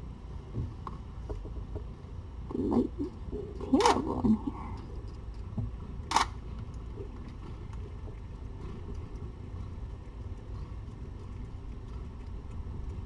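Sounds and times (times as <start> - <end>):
low hum: 0.0 - 13.0
cat eating from metal bowl: 3.4 - 13.0.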